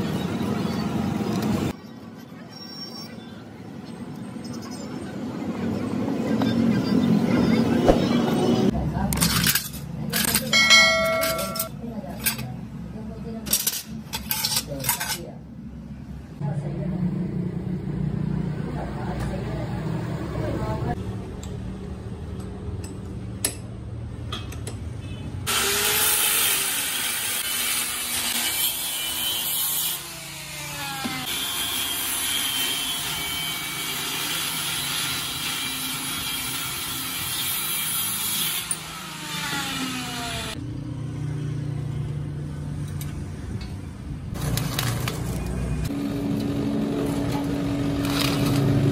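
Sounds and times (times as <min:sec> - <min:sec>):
angle grinder cutting metal: 0:25.5 - 0:40.6.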